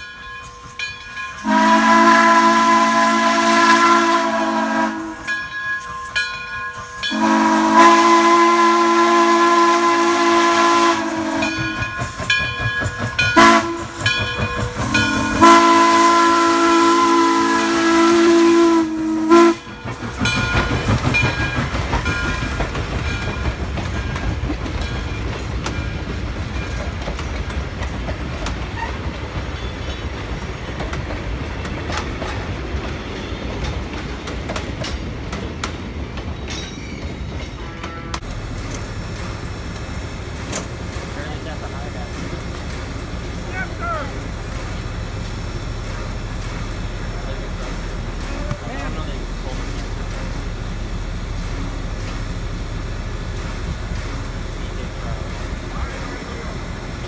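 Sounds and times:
train passing with steady rumble: 0.0 - 57.0
steam whistle blasts: 1.4 - 5.3, 7.1 - 11.7, 13.4 - 14.0, 14.8 - 19.7
wheels clacking over rail joints: 10.2 - 17.8, 19.3 - 57.0.

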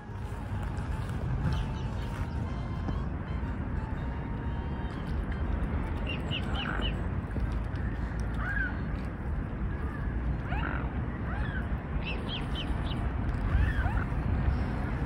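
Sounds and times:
steady low rumble: 0.0 - 15.0
cygnets peeping: 6.0 - 7.0, 10.5 - 14.2.

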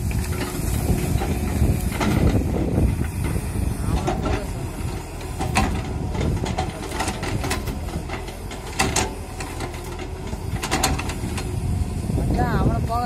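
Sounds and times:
excavator diesel engine running: 0.0 - 13.0
metallic clanks from excavator bucket: 3.2 - 11.5.

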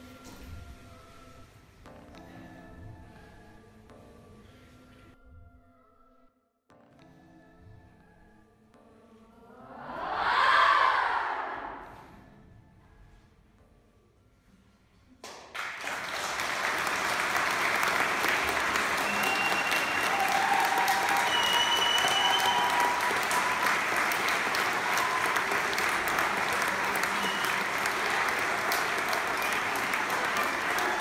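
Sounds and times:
audience applause: 15.5 - 31.0
crowd calls: 16.6 - 31.0.

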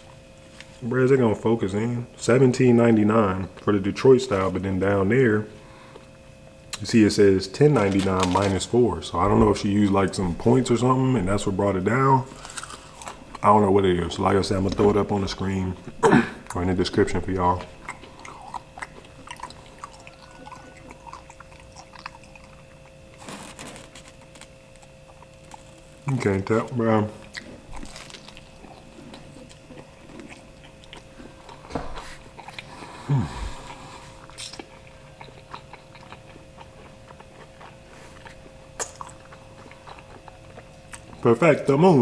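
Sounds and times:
faint steady hum: 0.0 - 42.0
person chewing food: 12.3 - 13.4, 17.5 - 41.2.

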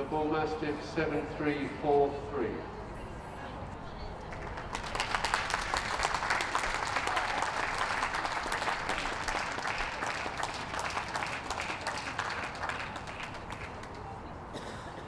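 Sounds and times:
audience applauding: 4.3 - 14.1.

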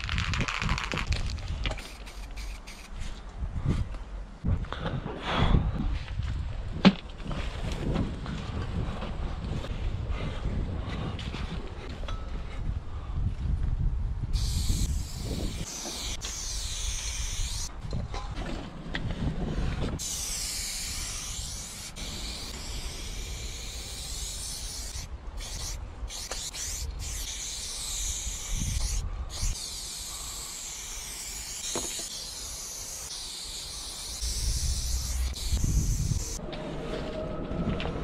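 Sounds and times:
spray paint can hissing: 0.0 - 3.1, 14.3 - 17.7, 20.0 - 36.4.

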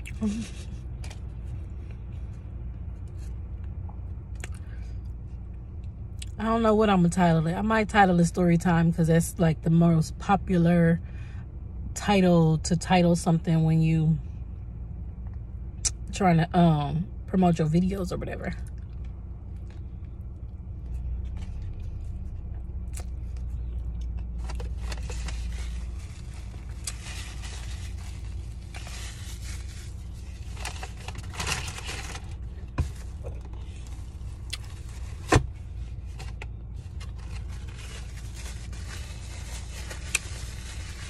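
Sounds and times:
car cabin rumble: 15.1 - 41.0
rustling and scraping handling: 23.2 - 41.0.

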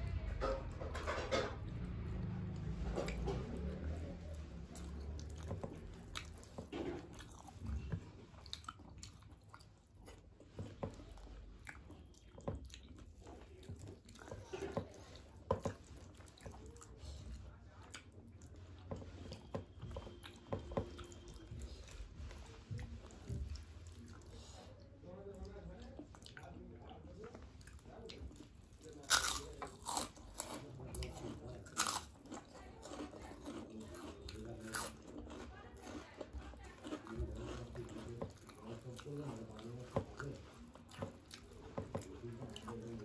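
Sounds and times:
chewing and wet mouth smacks: 2.2 - 17.0, 25.4 - 43.0.

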